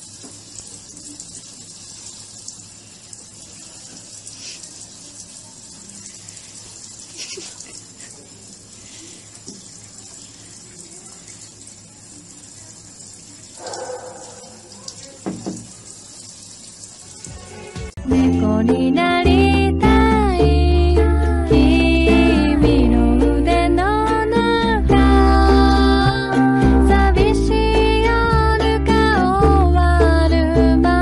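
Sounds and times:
faucet spray into sink: 0.0s - 17.4s.

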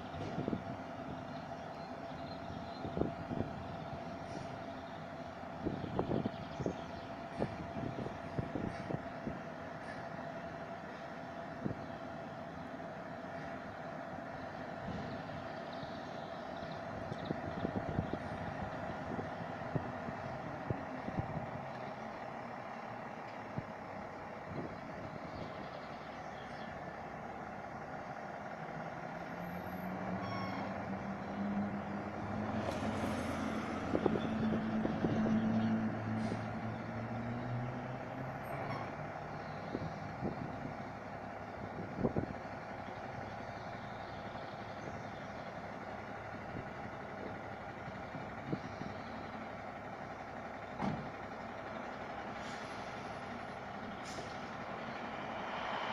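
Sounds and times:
diesel truck engine running: 0.0s - 55.9s
car passing: 54.6s - 55.9s.

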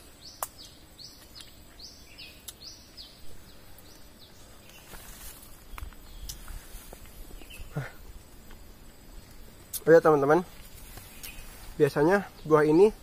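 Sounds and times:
rustle: 0.0s - 13.0s.

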